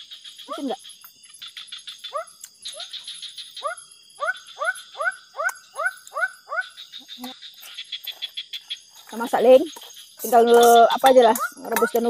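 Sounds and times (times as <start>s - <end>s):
high-pitched night creature chorus: 0.4s - 0.8s, 9.1s - 12.0s
animal upward-sweeping calls: 2.0s - 7.3s.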